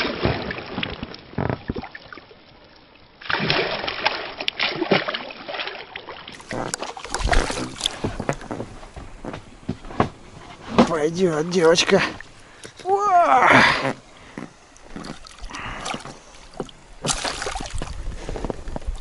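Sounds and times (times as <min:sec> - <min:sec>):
fish thrashing and splashing: 0:03.2 - 0:09.2, 0:13.5 - 0:19.0.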